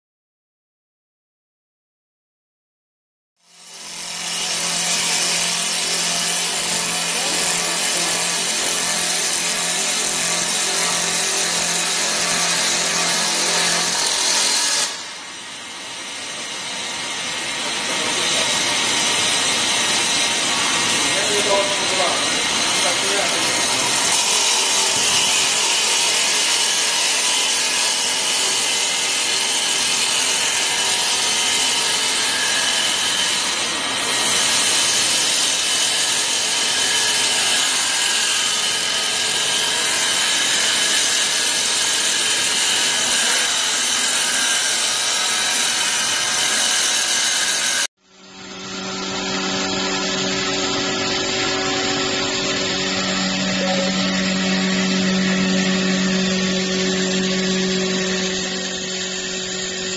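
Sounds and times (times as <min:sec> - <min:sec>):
lathe cutter shaving wood: 0:03.5 - 0:59.9
high machine whine: 0:48.0 - 0:59.9.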